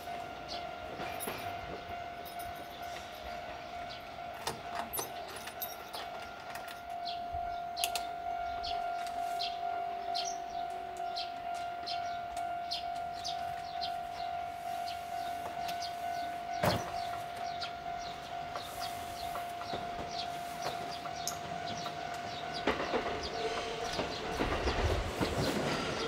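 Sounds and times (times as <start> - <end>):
train rumbling on rails: 0.0 - 26.0.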